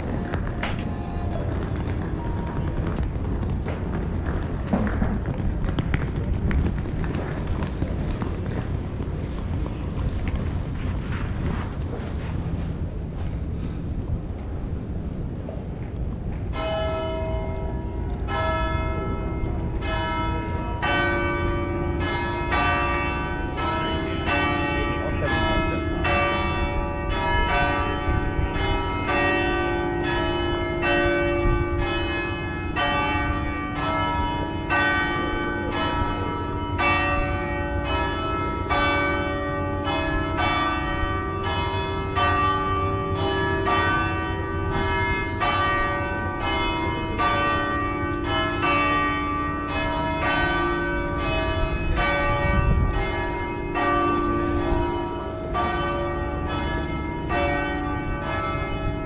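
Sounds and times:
church bells pealing: 0:00.0 - 0:03.7, 0:16.5 - 0:59.0.

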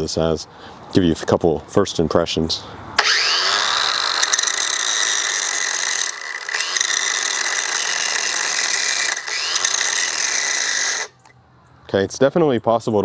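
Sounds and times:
angle grinder grinding metal pipe: 0:03.0 - 0:11.3.

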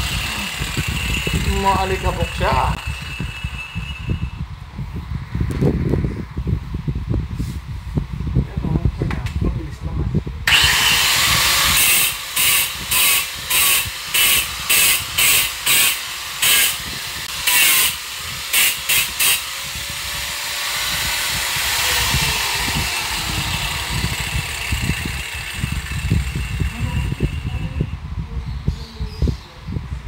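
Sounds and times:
power tool hissing against wall: 0:00.0 - 0:04.3, 0:10.5 - 0:27.8.

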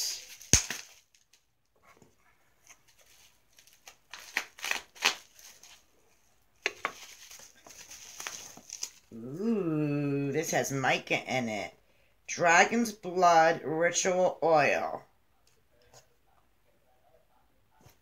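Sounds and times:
bubble wrap crinkling and tearing: 0:00.0 - 0:01.5, 0:02.5 - 0:09.2.

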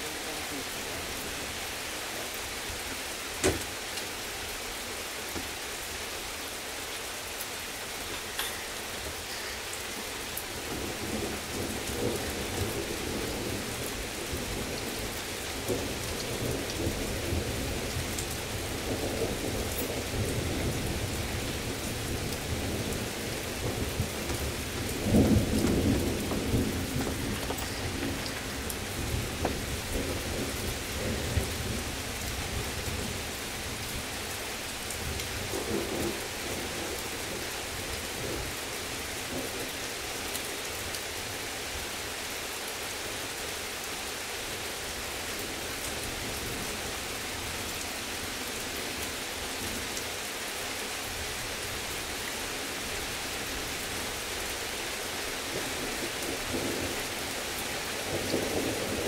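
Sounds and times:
heavy rain: 0:00.0 - 0:59.0
thunder rumbling: 0:10.5 - 0:34.0.

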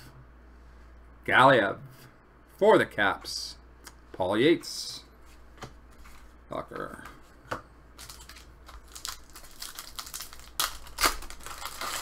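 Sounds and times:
cards and foil wrapper crinkling: 0:08.0 - 0:12.0.

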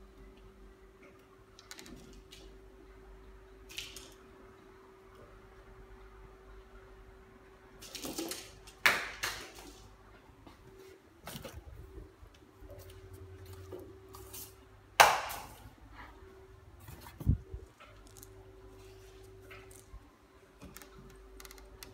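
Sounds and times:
small toys falling from shelf: 0:07.8 - 0:09.9.

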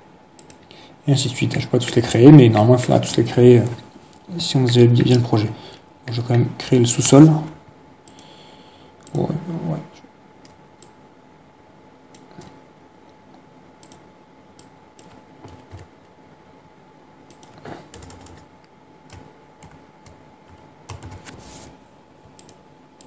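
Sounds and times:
computer keyboard keystrokes: 0:00.4 - 0:00.6, 0:12.1 - 0:12.6, 0:13.8 - 0:15.9, 0:17.3 - 0:18.5, 0:19.1 - 0:21.4, 0:22.2 - 0:23.0.

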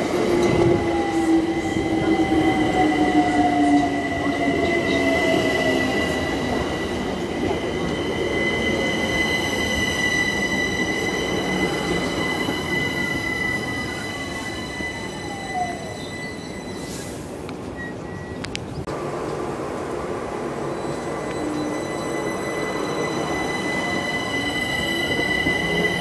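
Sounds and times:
train wheels rumbling: 0:00.0 - 0:18.2
brake squeal: 0:06.1 - 0:18.4.

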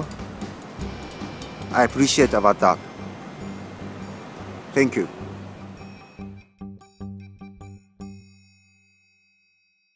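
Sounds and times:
short pitched notes: 0:00.8 - 0:06.4.

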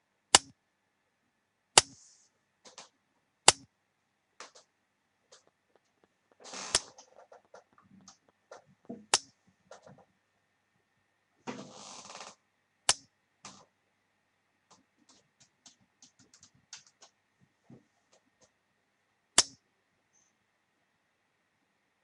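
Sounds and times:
faint irregular ticks: 0:04.4 - 0:10.1, 0:14.7 - 0:17.2
sharp clicks: 0:14.7 - 0:17.2.

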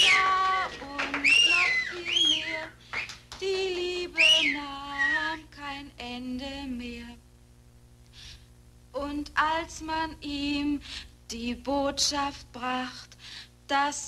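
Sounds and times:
crowd of men whistling: 0:00.0 - 0:00.4, 0:01.1 - 0:03.2, 0:04.2 - 0:05.2.

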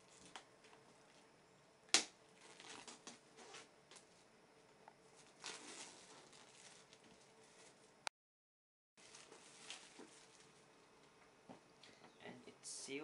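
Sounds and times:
plastic wrap crinkling: 0:00.0 - 0:01.2, 0:02.3 - 0:04.1, 0:05.2 - 0:08.0, 0:09.0 - 0:10.8.

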